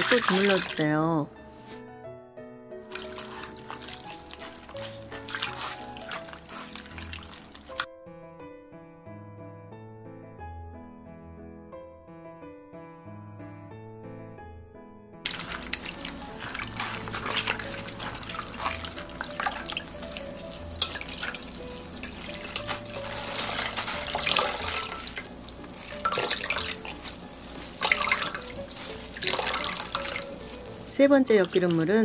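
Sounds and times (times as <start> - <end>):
water streaming and dripping: 0.0 - 0.9, 2.9 - 7.9, 15.3 - 32.0
water sloshing and splashing: 0.0 - 1.8, 2.9 - 7.9, 15.3 - 32.0
background music: 0.0 - 32.0.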